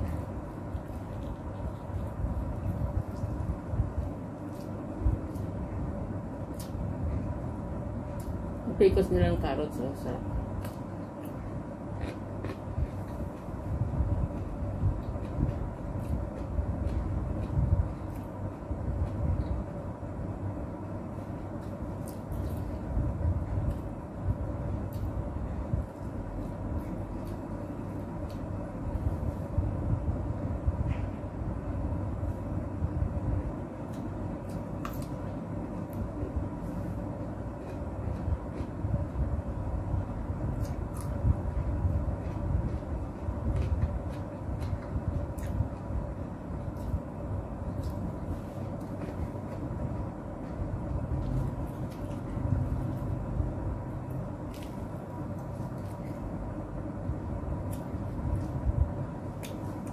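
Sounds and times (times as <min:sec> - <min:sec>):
person chewing food: 0:00.0 - 0:05.7, 0:10.6 - 0:19.7, 0:33.8 - 0:39.2, 0:40.4 - 0:46.0
faint steady hum: 0:00.0 - 0:59.9
low background rumble: 0:00.0 - 0:59.9.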